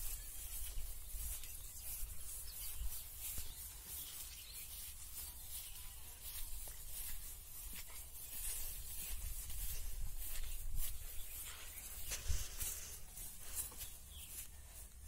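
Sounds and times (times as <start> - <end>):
rustling of grass and plants: 0.0 - 15.0
wind rumble on microphone: 8.4 - 12.6.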